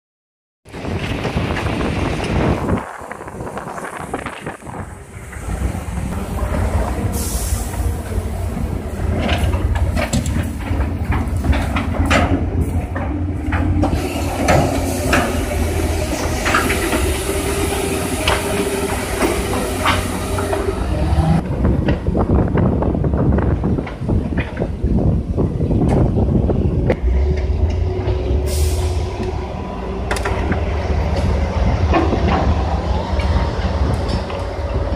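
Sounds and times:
heavy engine droning: 0.7s - 22.2s, 25.4s - 34.9s
metallic clanks and rattles: 9.1s - 15.4s.

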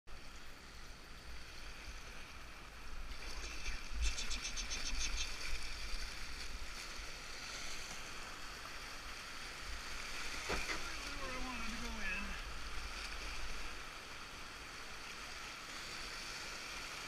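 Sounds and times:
river water rushing: 0.1s - 17.0s
water splashing: 2.9s - 14.1s.

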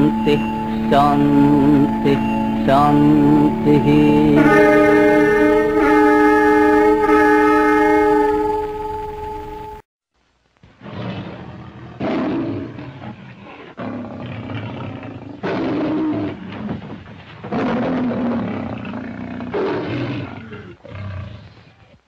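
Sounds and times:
lion roaring: 10.8s - 22.0s.

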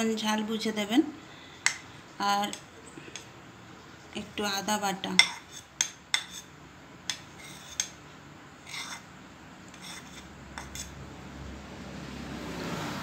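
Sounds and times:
spoon scraping a steel bowl: 5.2s - 6.5s, 7.1s - 8.0s, 8.6s - 9.1s, 9.7s - 11.0s.

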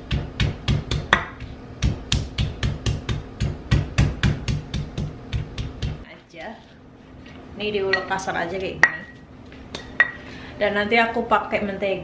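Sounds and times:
stone pestle pounding in mortar: 0.0s - 6.1s.

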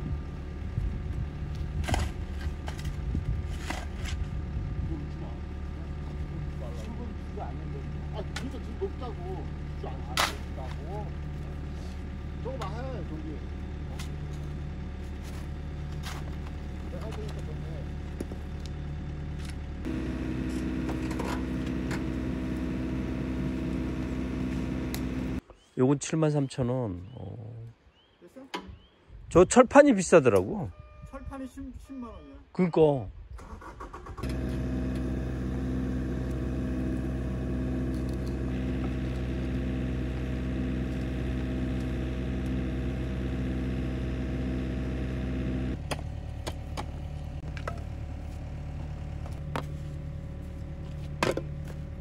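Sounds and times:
shovel scraping into stony soil: 1.8s - 4.3s
diesel engine idling: 4.5s - 25.4s, 33.6s - 52.0s.

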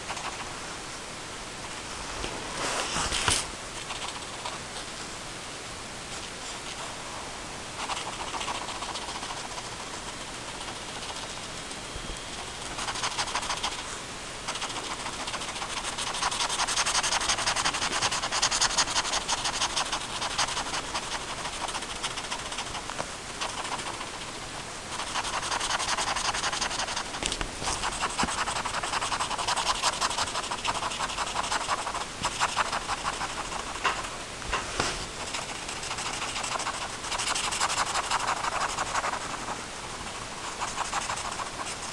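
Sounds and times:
pen scribbling on paper: 7.8s - 11.5s, 12.3s - 13.8s, 14.5s - 24.3s, 24.9s - 34.1s, 35.2s - 39.6s, 40.4s - 41.9s.

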